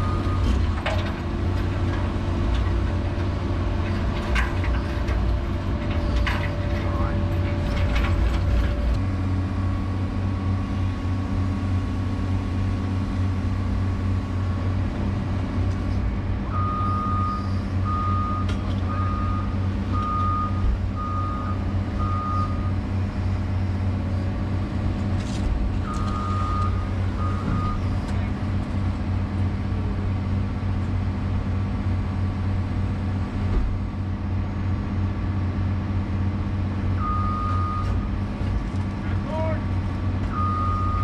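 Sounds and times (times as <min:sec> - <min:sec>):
diesel engine running: 0:00.0 - 0:41.0
backup alarm beeping: 0:40.3 - 0:41.0.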